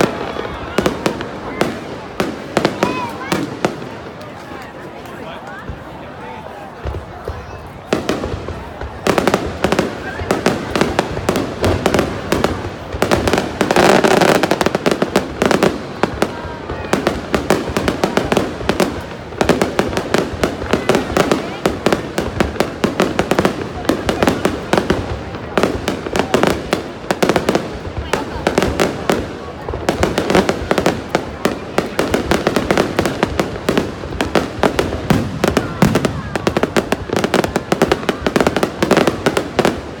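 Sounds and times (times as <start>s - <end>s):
fireworks bangs and crackles: 0.0s - 40.0s.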